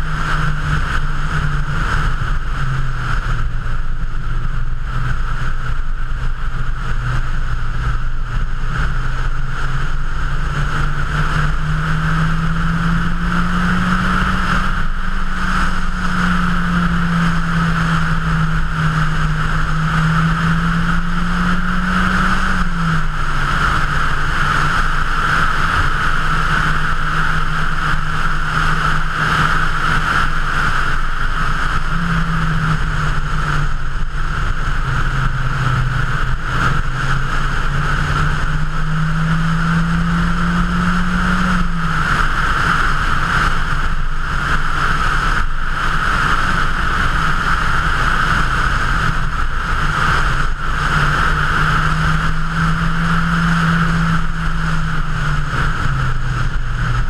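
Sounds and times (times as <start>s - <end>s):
car engine pulling: 0.0s - 57.0s
wind and road noise: 0.0s - 57.0s.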